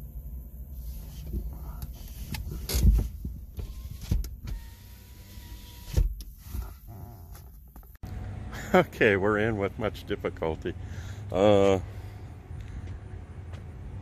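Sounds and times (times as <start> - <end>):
knocks and clunks in car cabin: 1.3 - 4.6.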